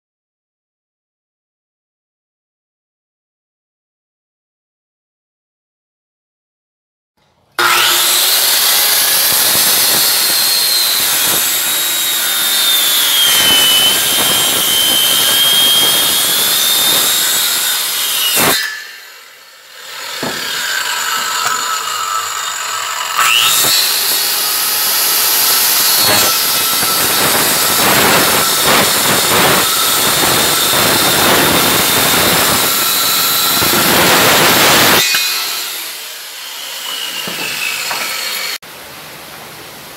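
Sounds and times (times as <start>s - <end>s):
circular saw cutting wood: 7.6s - 38.6s.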